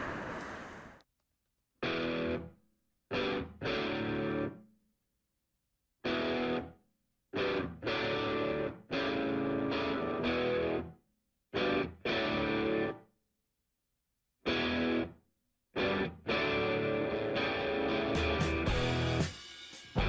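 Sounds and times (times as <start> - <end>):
electric guitar chords: 1.8 - 2.5, 3.1 - 4.6, 6.0 - 6.8, 7.4 - 10.9, 11.6 - 13.0, 14.5 - 15.1, 15.8 - 19.3.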